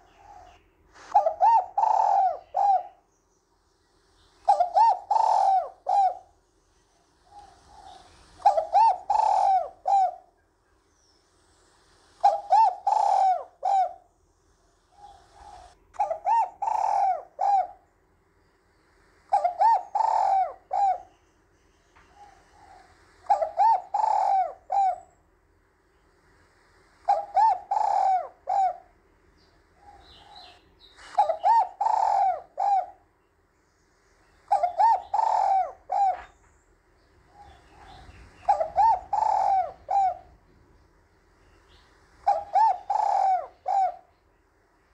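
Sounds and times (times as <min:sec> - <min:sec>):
dove cooing: 0:00.0 - 0:03.1, 0:04.4 - 0:10.4, 0:12.2 - 0:14.1, 0:14.8 - 0:17.9, 0:19.3 - 0:21.2, 0:22.0 - 0:25.2, 0:27.0 - 0:29.0, 0:29.6 - 0:33.1, 0:34.3 - 0:36.5, 0:37.1 - 0:41.0, 0:41.6 - 0:44.3.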